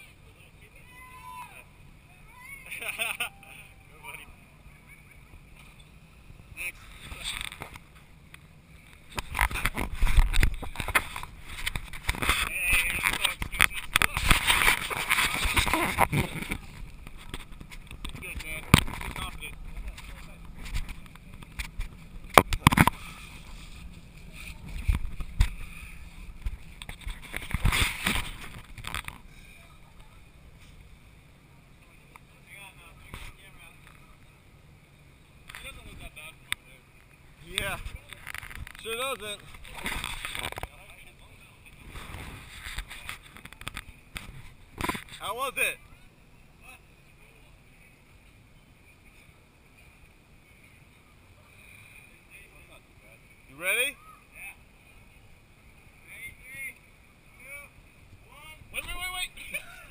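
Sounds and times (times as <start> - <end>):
thin high hum: 0.0 - 59.9
camera handling knocks and scrapes: 20.0 - 23.0, 26.4 - 29.2, 42.5 - 45.2.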